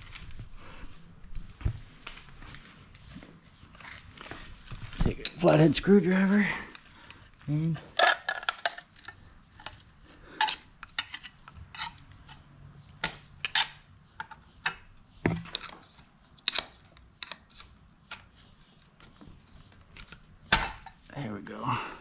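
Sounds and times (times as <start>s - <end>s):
screwdriver prying and scraping metal: 7.9s - 9.8s, 10.4s - 12.4s, 13.0s - 18.5s.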